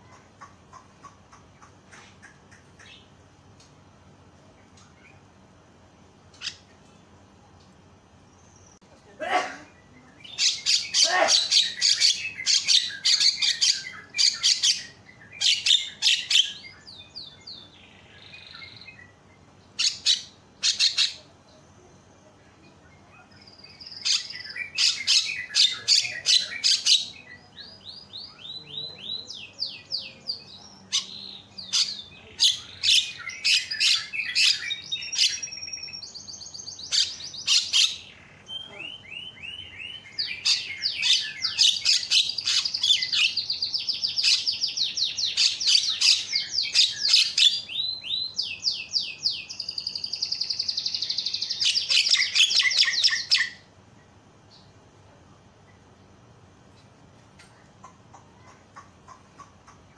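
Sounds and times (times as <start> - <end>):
bird harsh rasping calls: 19.8 - 21.3, 24.0 - 27.2.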